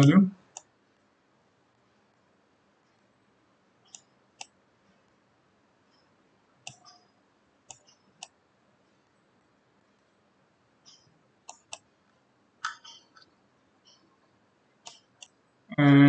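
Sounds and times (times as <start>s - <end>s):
faint room hiss: 0.0s - 16.0s
computer mouse clicks: 3.9s - 4.6s, 5.9s - 7.0s, 7.7s - 8.4s, 10.9s - 11.9s, 14.8s - 15.4s.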